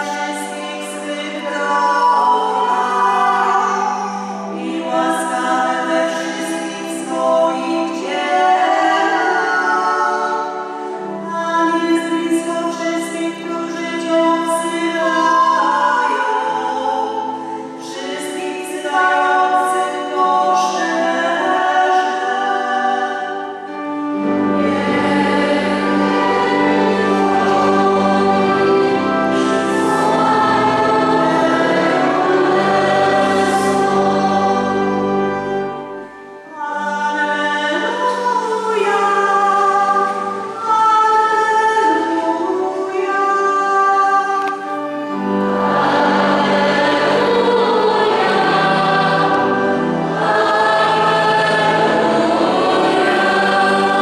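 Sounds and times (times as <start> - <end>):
women singing a hymn: 0.0 - 54.0
more voices singing: 24.2 - 35.3, 45.2 - 54.0.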